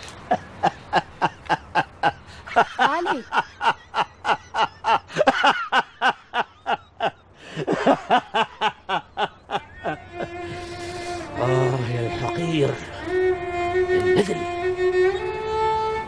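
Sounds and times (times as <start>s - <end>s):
soft string music: 0.0s - 5.1s, 6.2s - 16.0s
man laughing: 0.1s - 11.8s.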